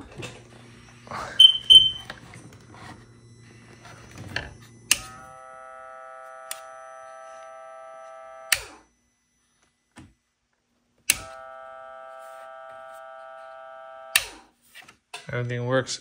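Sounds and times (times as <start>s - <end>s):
electric bilge pump whining: 0.0s - 8.9s, 11.1s - 14.5s.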